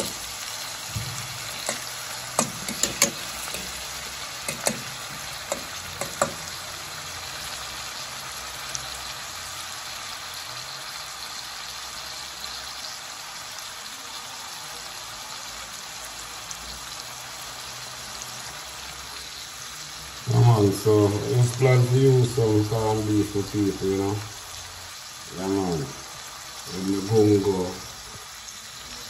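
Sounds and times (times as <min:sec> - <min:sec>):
vegetables sizzling in hot oil: 0:00.0 - 0:29.0
fork clicking against pot: 0:01.6 - 0:03.7, 0:04.5 - 0:04.9.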